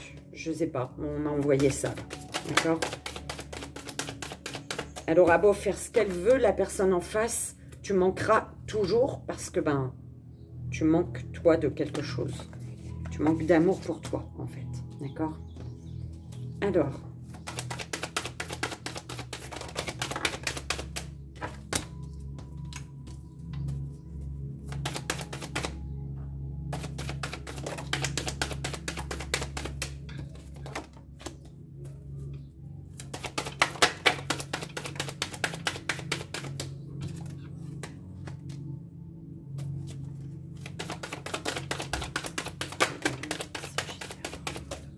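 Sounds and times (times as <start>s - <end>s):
cards being shuffled: 1.5s - 6.3s, 17.2s - 22.0s, 24.6s - 25.8s, 26.7s - 31.6s, 32.9s - 38.7s, 39.6s - 44.9s.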